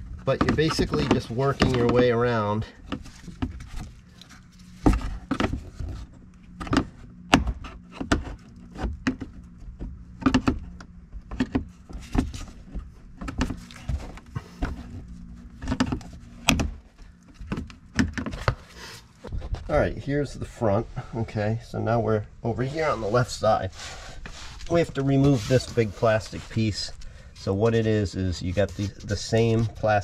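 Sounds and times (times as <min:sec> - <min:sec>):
faint low hum: 0:00.0 - 0:30.0.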